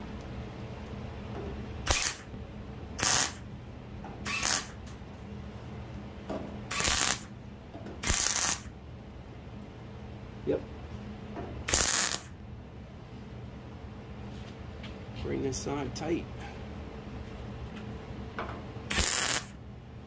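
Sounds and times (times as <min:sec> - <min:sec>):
welder arc crackle: 0:01.8 - 0:02.4, 0:03.0 - 0:03.5, 0:04.2 - 0:05.0, 0:06.7 - 0:07.3, 0:08.0 - 0:08.7, 0:11.6 - 0:12.4, 0:18.9 - 0:19.6.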